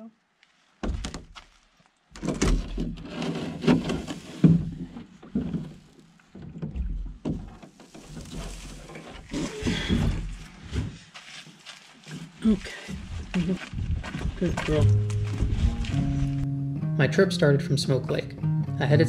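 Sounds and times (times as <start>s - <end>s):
knocks against canoe hull: 0.8s - 1.3s, 6.4s - 8.0s.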